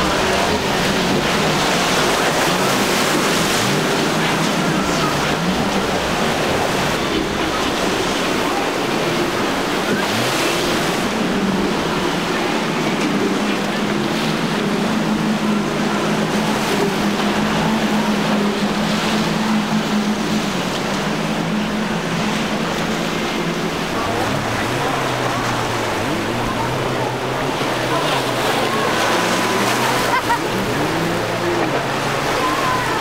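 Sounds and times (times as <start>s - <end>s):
low boat engine hum: 0.0s - 33.0s
outboard motors droning: 0.0s - 33.0s
water rushing and waves breaking: 0.0s - 33.0s.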